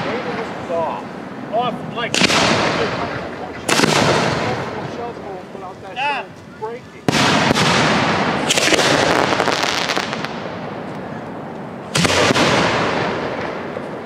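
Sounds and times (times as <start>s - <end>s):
firework shells bursting with bangs: 2.1s - 5.0s, 7.0s - 10.9s, 11.9s - 14.0s
firework crackling: 2.1s - 11.2s, 11.8s - 14.0s.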